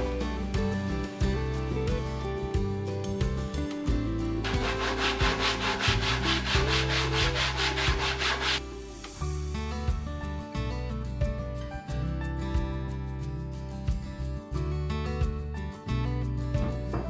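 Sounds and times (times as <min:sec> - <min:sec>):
background music: 0:00.0 - 0:17.0
sandpaper rubbing on wood: 0:04.4 - 0:08.6.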